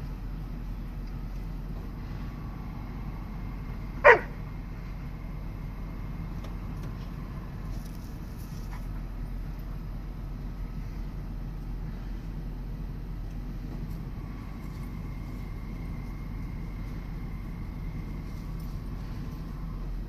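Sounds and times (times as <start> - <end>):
vehicle humming: 0.0 - 20.0
dog barking: 4.0 - 4.4.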